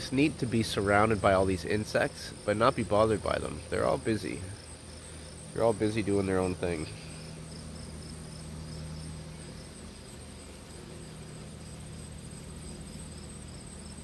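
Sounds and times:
cricket trill: 0.0s - 14.0s
insects buzzing: 0.0s - 14.0s
pulsing insect chirp: 0.0s - 14.0s.

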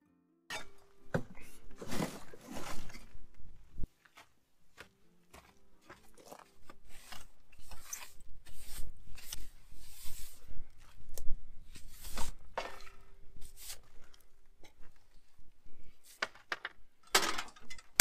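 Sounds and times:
metal scraper raking coals: 0.5s - 0.8s, 6.3s - 10.4s, 11.7s - 13.9s.

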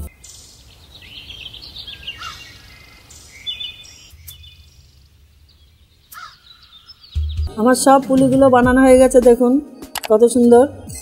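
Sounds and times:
small birds chirping: 0.0s - 8.6s
faint outdoor background noise: 0.0s - 11.0s.

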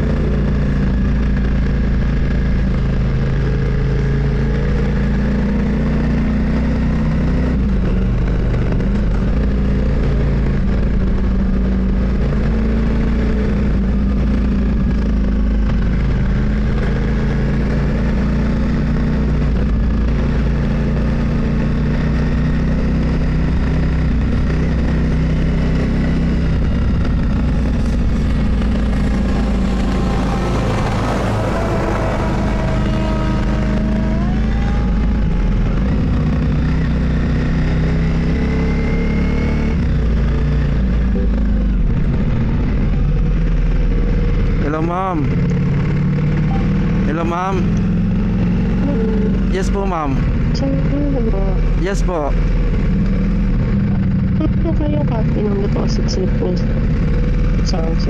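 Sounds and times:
motorcycle engine running: 0.0s - 58.0s
road and wind noise: 0.0s - 58.0s
rushing noise: 27.5s - 34.0s
rising pitch sweeps: 27.9s - 35.0s, 46.4s - 47.1s.

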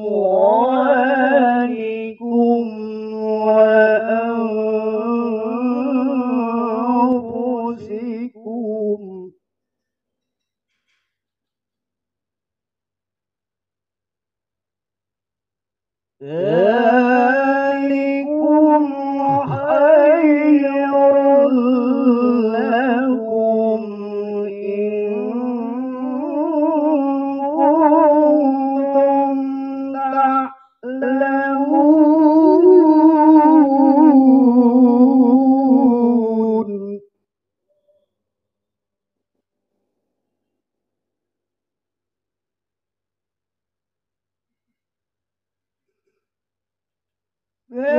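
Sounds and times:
man reciting melodically into microphone: 0.0s - 9.3s, 16.2s - 37.0s.

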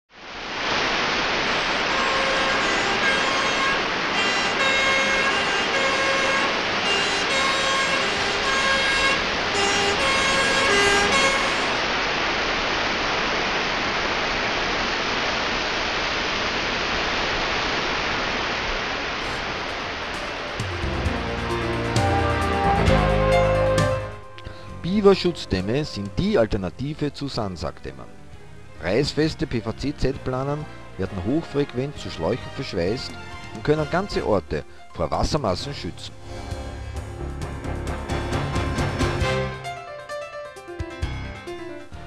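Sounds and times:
loud steady rushing noise: 0.1s - 25.3s
two-tone siren: 1.4s - 11.9s, 20.2s - 24.2s.

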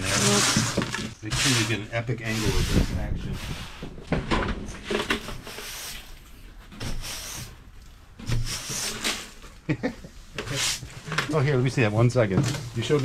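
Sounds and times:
broom sweeping grit: 0.0s - 3.9s, 5.4s - 6.2s, 8.3s - 9.4s, 10.1s - 12.1s.

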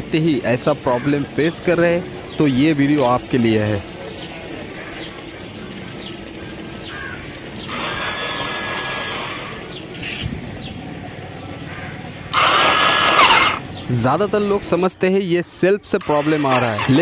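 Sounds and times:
electric starter motor whirring: 6.9s - 10.2s, 12.3s - 13.8s, 15.9s - 17.0s.

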